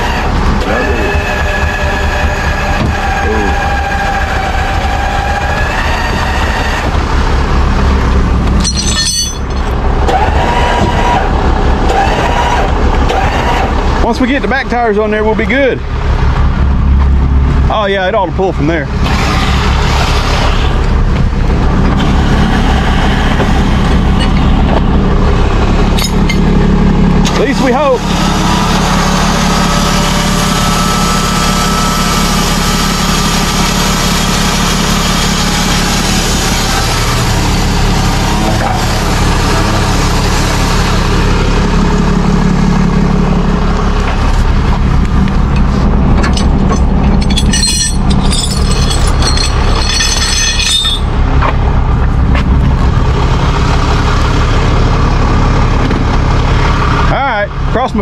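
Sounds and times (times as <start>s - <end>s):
truck engine running: 0.0s - 58.0s
rattling clatter: 8.4s - 10.3s, 45.4s - 51.5s.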